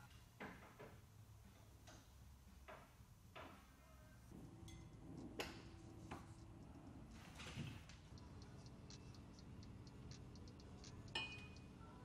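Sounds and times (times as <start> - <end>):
faint low hum: 3.8 - 12.0
faint clicks and taps: 4.7 - 12.0.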